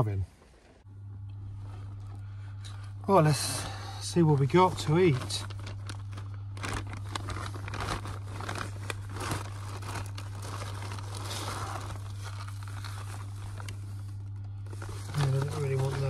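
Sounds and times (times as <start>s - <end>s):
low hum: 0.0s - 16.0s
fabric bag and packets crinkling: 3.2s - 16.0s.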